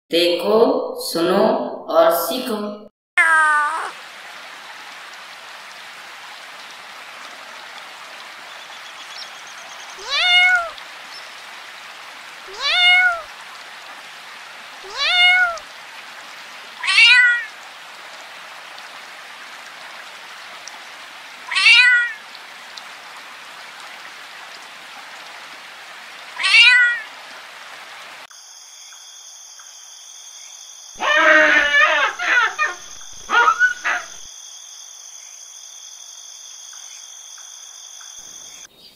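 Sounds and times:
baboon calls: 0:03.2 - 0:04.0, 0:10.0 - 0:10.7, 0:31.0 - 0:34.3
kitten meowing: 0:03.2 - 0:04.0, 0:10.0 - 0:10.8, 0:12.5 - 0:13.3, 0:14.9 - 0:15.6, 0:16.8 - 0:17.5, 0:21.5 - 0:22.2, 0:26.4 - 0:27.0.

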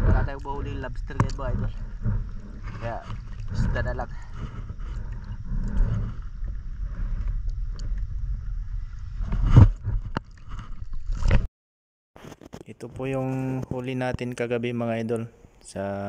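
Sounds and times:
water sloshing and splashing: 0:00.0 - 0:11.5.

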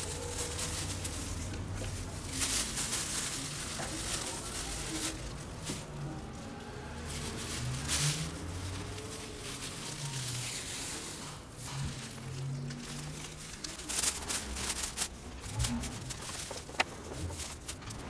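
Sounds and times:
plastic bag rustling and crinkling: 0:00.0 - 0:18.0.

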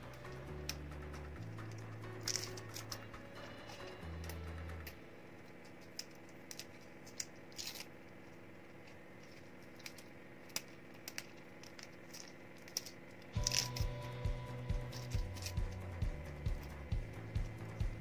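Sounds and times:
beans snapping by hand: 0:00.0 - 0:18.0
faint background music: 0:00.0 - 0:18.0.

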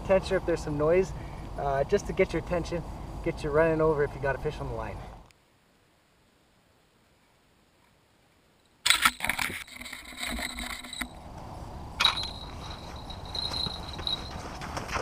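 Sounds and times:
steady high ring: 0:09.7 - 0:15.0
small bell jangling: 0:09.8 - 0:11.2, 0:12.0 - 0:15.0
sharp clink: 0:12.0 - 0:14.7.

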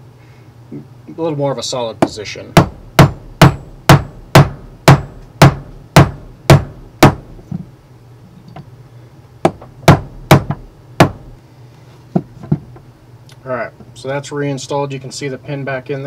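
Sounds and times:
hammer tapping metal punch: 0:02.0 - 0:07.7, 0:09.4 - 0:11.3.

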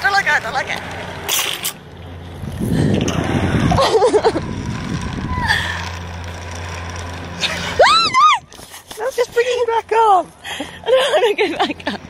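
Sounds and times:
wind rumbling on microphone: 0:02.2 - 0:07.0, 0:07.7 - 0:09.6.

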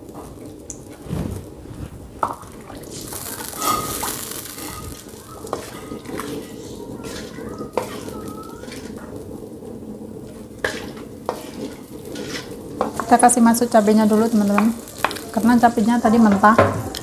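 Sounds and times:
spatula scraping and knocking pan: 0:02.1 - 0:09.2, 0:10.2 - 0:15.4, 0:16.1 - 0:17.0
spatula stirring sauce in wok: 0:02.7 - 0:15.4.

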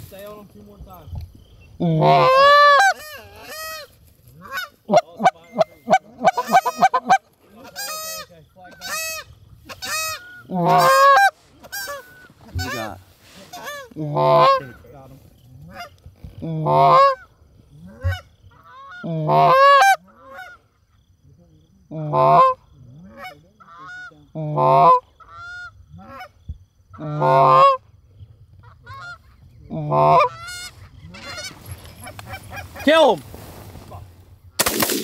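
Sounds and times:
goose honking: 0:01.8 - 0:14.8, 0:15.7 - 0:17.3, 0:17.9 - 0:20.6, 0:21.9 - 0:26.3, 0:26.9 - 0:27.8, 0:28.6 - 0:33.0.

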